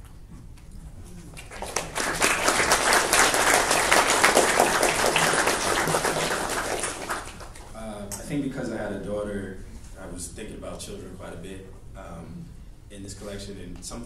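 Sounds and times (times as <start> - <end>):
audience applauding: 1.3 - 7.7.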